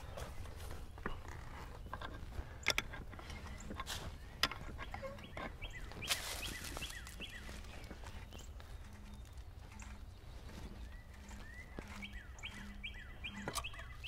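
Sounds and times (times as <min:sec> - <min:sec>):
birds chirping: 0:00.0 - 0:14.0
clicks and knocks of tools: 0:01.1 - 0:05.6, 0:13.3 - 0:14.0.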